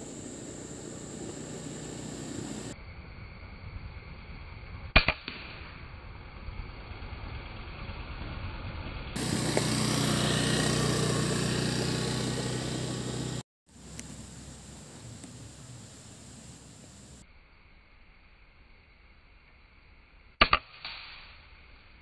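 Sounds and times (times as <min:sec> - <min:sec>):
low hum: 0:00.0 - 0:22.0
air rifle shot: 0:05.0 - 0:05.7, 0:20.4 - 0:21.3.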